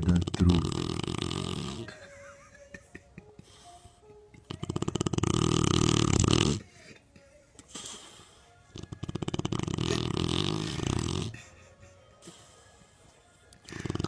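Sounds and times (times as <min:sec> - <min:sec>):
dog snoring: 0:00.0 - 0:01.9, 0:04.4 - 0:06.7, 0:07.7 - 0:11.4, 0:13.6 - 0:14.0.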